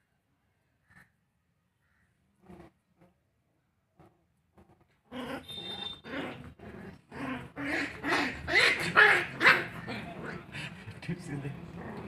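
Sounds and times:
puppies growling and yipping: 5.1s - 10.6s, 11.7s - 12.0s.

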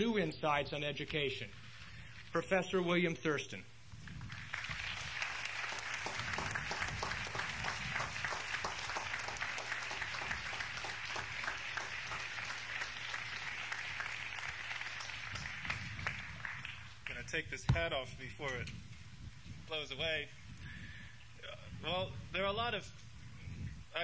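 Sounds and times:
audience applauding: 4.2s - 17.2s.

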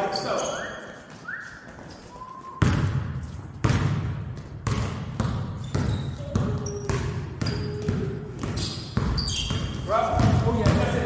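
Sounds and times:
basketball bouncing on hardwood: 2.6s - 11.0s.

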